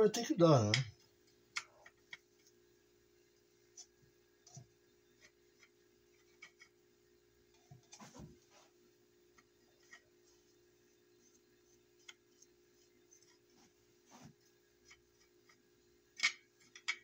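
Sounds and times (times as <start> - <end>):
faint steady hum: 0.0 - 17.0
paintbrush ticking and scraping on wood: 9.4 - 15.7.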